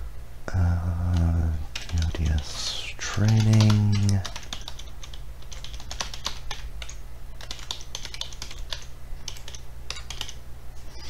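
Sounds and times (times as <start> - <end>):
low steady hum: 0.0 - 11.0
keyboard typing: 1.0 - 10.4.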